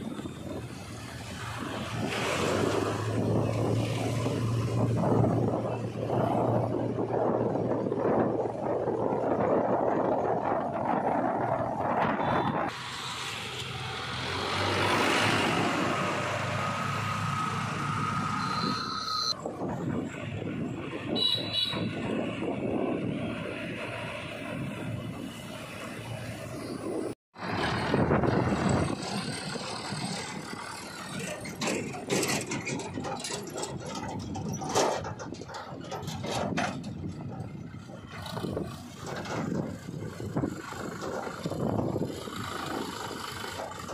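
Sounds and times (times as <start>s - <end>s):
diesel engine driving past: 12.8s - 18.8s
tractor diesel engine running: 27.4s - 43.9s
trailer knocks and rattles: 27.4s - 43.9s.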